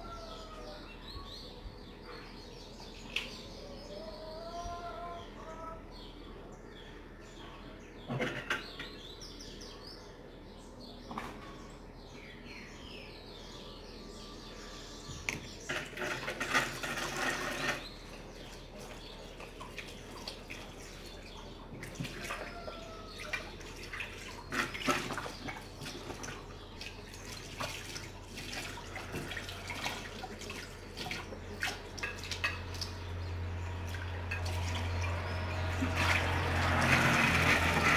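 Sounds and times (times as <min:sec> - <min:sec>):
water splashing and dripping: 0:18.5 - 0:33.1.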